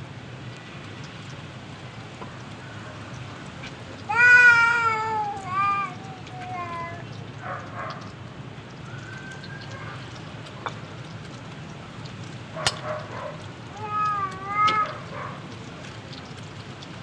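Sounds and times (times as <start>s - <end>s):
wood fire crackling: 0.0s - 17.0s
cat meowing: 4.1s - 7.0s, 13.7s - 15.1s.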